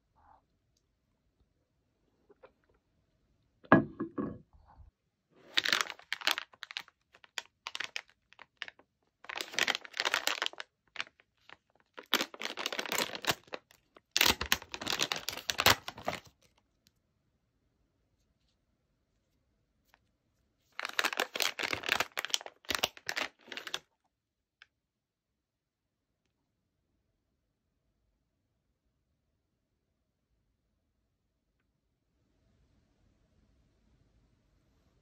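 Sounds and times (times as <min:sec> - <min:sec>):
snack packaging crinkling and tearing: 0:05.4 - 0:16.6, 0:20.7 - 0:23.9.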